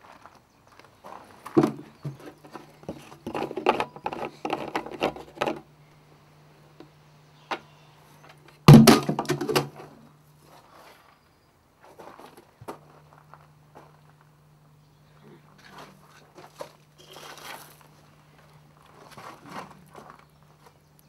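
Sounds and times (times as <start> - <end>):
steady low hum: 0.4 - 21.0
objects clattering and knocking: 1.5 - 5.6, 8.7 - 9.9.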